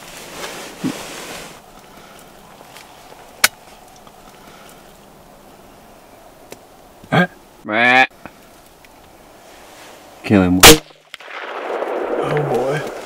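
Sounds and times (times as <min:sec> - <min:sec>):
people rustling and shuffling: 0:00.0 - 0:05.6, 0:09.4 - 0:10.3.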